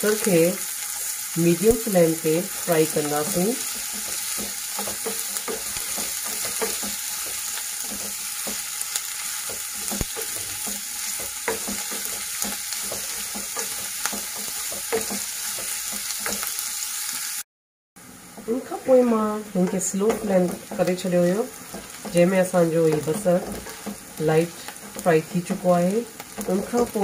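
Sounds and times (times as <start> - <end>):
onions sizzling in hot oil: 0.0 - 17.4, 18.0 - 27.0
spatula scraping and tapping pan: 3.0 - 16.6, 19.6 - 27.0.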